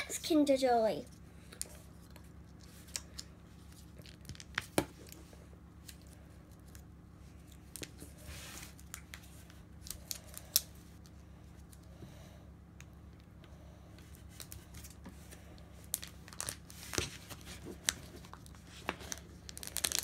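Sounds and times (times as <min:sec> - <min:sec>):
foil and plastic crackling: 0:14.1 - 0:20.0
foil rustle: 0:15.9 - 0:20.0.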